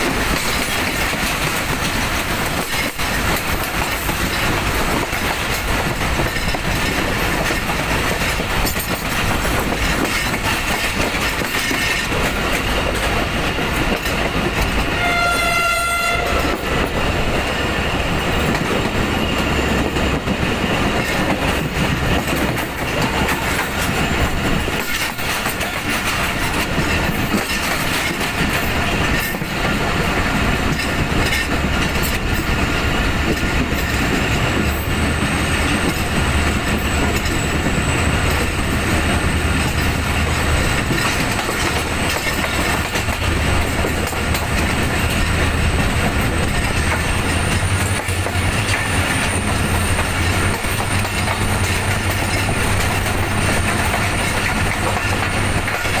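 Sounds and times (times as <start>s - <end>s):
train wheels rumbling on rails: 0.0s - 56.0s
train horn: 14.9s - 16.7s.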